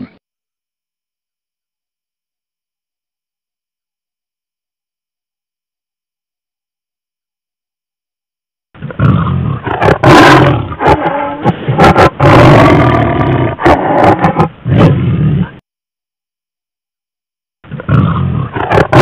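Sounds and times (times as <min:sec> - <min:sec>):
tiger roaring and growling: 0:08.8 - 0:15.6, 0:17.7 - 0:19.0.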